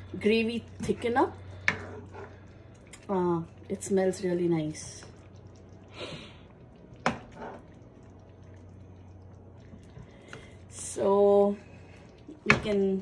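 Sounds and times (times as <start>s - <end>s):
faint low hum: 0.0s - 13.0s
spatula scraping pan: 0.8s - 2.4s, 7.0s - 7.6s.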